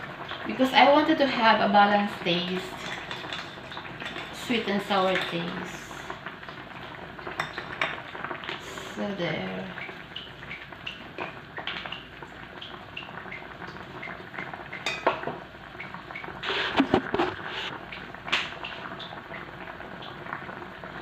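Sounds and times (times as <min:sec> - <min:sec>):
pork simmering and bubbling in a pan: 0:00.0 - 0:21.0
utensil clinking and scraping a pan: 0:02.7 - 0:05.5.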